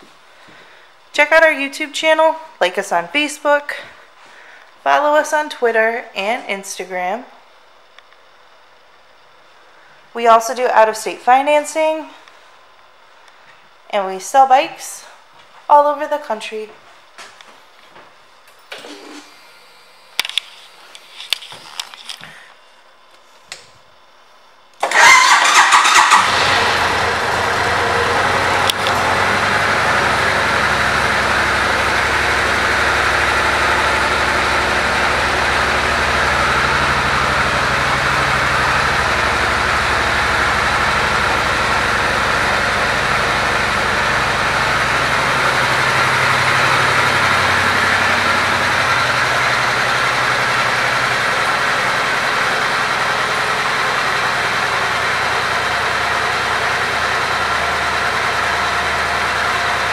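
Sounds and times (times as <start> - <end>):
motorcycle engine idling: 24.9 - 59.9.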